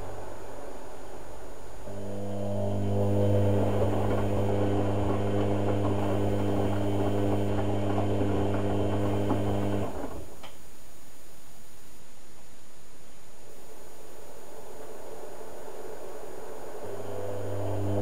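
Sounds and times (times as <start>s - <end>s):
washing machine drum humming: 1.9s - 10.6s, 16.8s - 18.0s
faint click: 10.4s - 10.6s.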